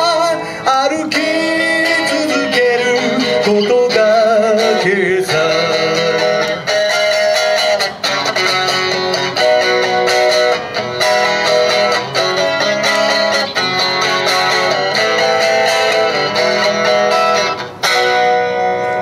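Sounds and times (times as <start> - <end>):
man singing: 0.0 - 6.8
electric guitar strumming: 0.0 - 19.0.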